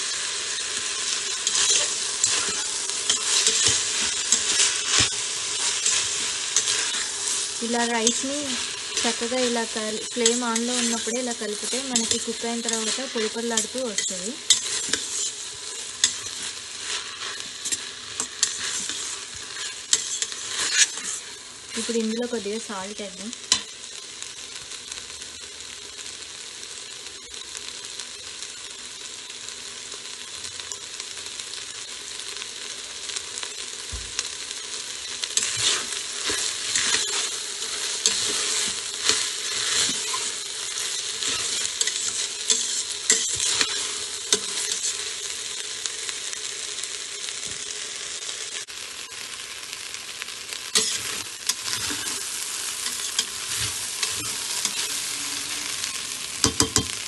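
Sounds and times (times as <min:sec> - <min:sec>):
rice and vegetables sizzling: 0:00.0 - 0:57.0
metal spatula scraping a pot: 0:01.4 - 0:21.2, 0:35.1 - 0:45.0, 0:50.8 - 0:56.7.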